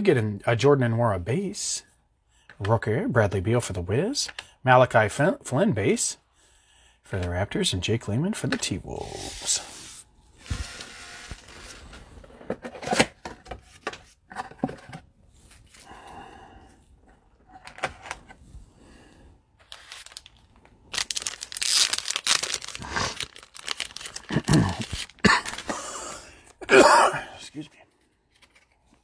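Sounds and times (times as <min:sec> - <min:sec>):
packaging crinkling and tearing: 0:19.6 - 0:25.8.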